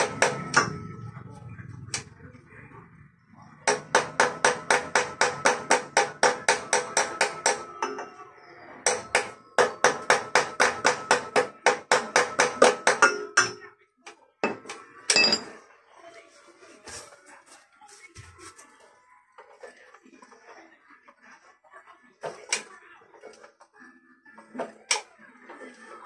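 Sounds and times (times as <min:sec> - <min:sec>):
metal hammering on metal: 0:00.0 - 0:01.0, 0:03.6 - 0:08.2, 0:08.8 - 0:13.7.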